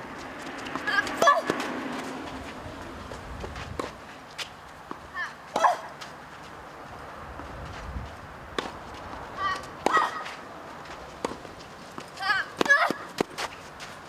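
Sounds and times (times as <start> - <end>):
racket striking ball: 0.7 - 2.2, 4.8 - 6.0, 8.5 - 8.8, 9.4 - 10.4, 11.2 - 13.5.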